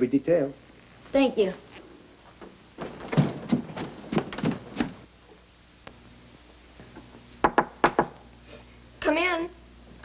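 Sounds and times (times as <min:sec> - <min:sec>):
irregular thuds and taps: 0:02.4 - 0:05.0.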